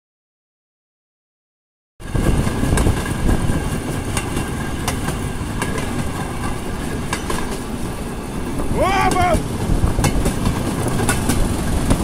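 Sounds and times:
rail vehicle rumble: 0:02.0 - 0:12.0
wheel clicks over rail joints: 0:04.1 - 0:07.7, 0:08.5 - 0:12.0.

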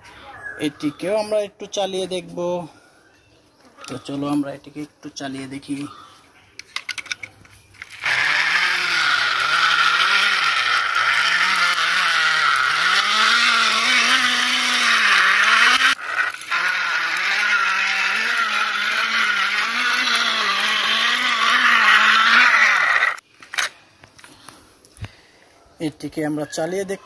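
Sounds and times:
car engine sound: 0:07.8 - 0:23.2.

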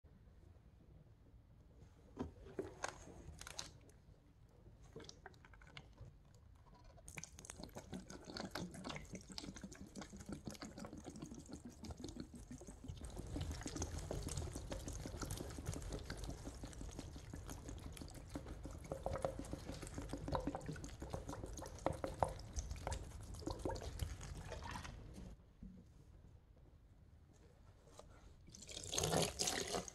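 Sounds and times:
liquid pouring and splashing: 0:06.9 - 0:25.2, 0:28.5 - 0:29.9.

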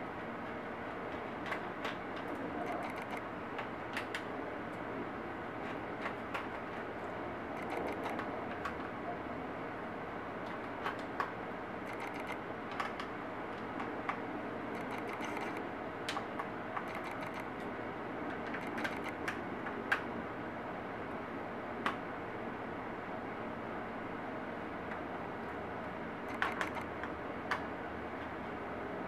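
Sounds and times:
screwdriver clicks and taps: 0:26.3 - 0:26.9.

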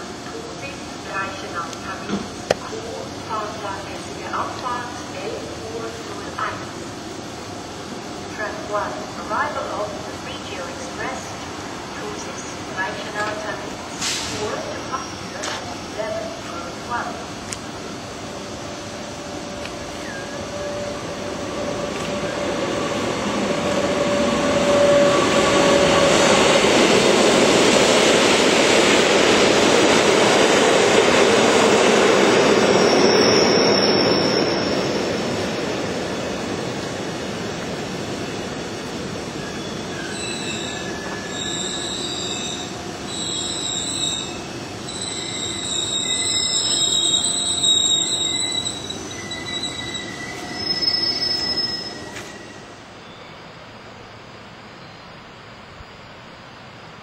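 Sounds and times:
train wheels squealing: 0:32.6 - 0:35.3, 0:39.3 - 0:53.6.

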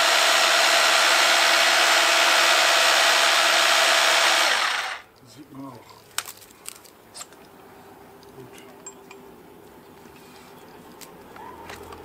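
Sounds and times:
hard parts clicking and clinking: 0:08.5 - 0:09.3.

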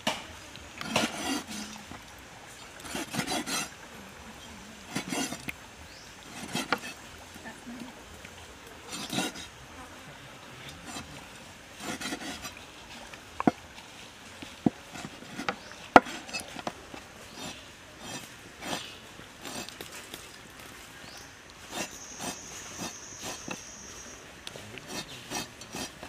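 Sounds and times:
knife slicing and scraping: 0:00.8 - 0:01.8, 0:02.8 - 0:03.8, 0:04.9 - 0:05.5, 0:06.3 - 0:07.0, 0:08.9 - 0:09.5, 0:10.8 - 0:11.1, 0:11.8 - 0:12.6, 0:14.7 - 0:20.1, 0:21.6 - 0:23.7, 0:24.8 - 0:26.0.

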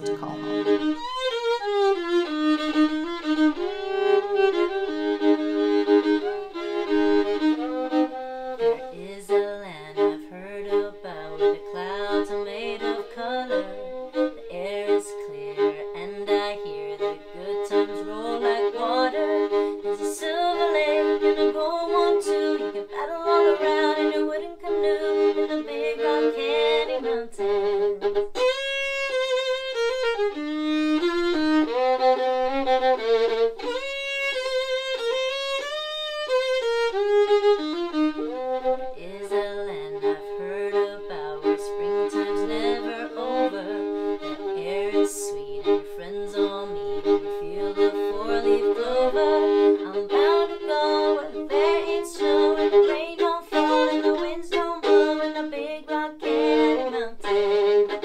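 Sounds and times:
solo fiddle playing: 0:00.0 - 0:58.0.

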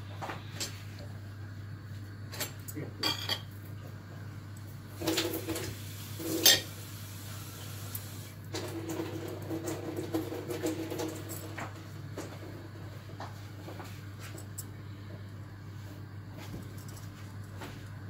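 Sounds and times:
steady low hum: 0:00.0 - 0:05.0, 0:11.2 - 0:18.0.

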